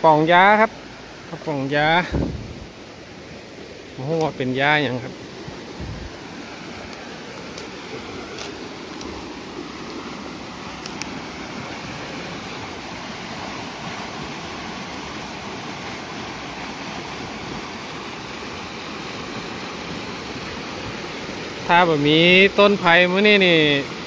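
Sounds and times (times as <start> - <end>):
floodwater rushing down a creek: 0.0 - 24.0
faint clicks: 10.8 - 11.1.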